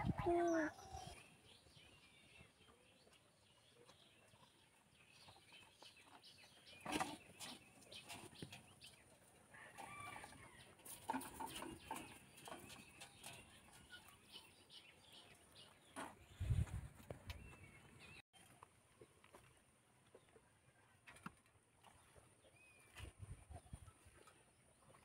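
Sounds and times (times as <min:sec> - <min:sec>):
chickens clucking: 0:05.4 - 0:14.2.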